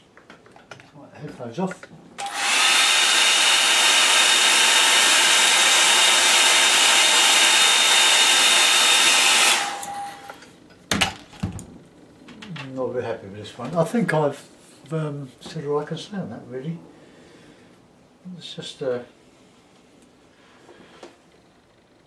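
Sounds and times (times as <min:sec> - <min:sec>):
hair dryer blowing with whine: 0:02.2 - 0:10.4.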